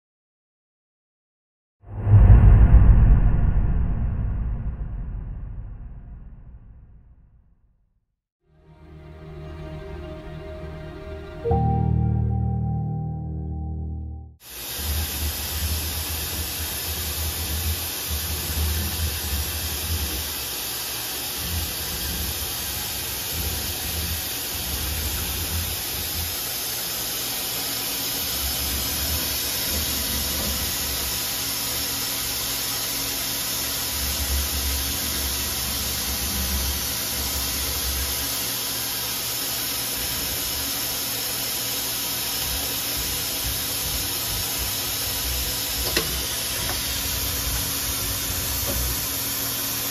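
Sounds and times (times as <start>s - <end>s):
low rumble: 1.9s - 7.5s
lathe machining hiss: 14.4s - 49.9s.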